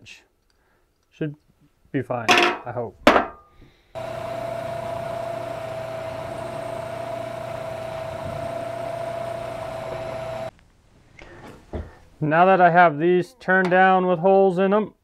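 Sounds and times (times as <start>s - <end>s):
metal lathe drilling steel: 4.0s - 10.5s.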